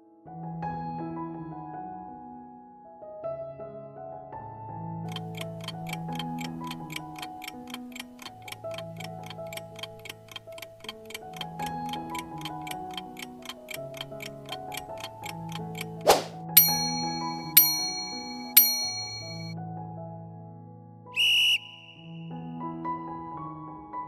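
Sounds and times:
soft piano background music: 0:00.0 - 0:16.0, 0:19.5 - 0:21.2, 0:22.0 - 0:24.0
clock ticking: 0:05.1 - 0:19.5.

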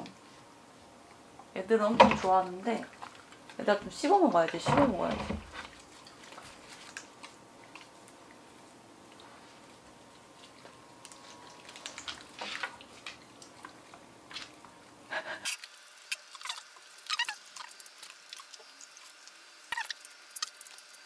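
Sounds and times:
dogs chewing and licking: 0:02.9 - 0:03.7, 0:05.6 - 0:21.0.

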